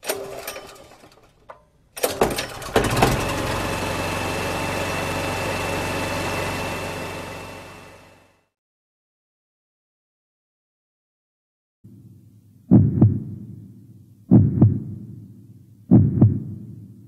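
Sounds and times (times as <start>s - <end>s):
engine catching with sharp bangs: 0.0s - 8.4s
engine starter clicks: 0.0s - 8.4s
engine idling: 0.1s - 8.5s.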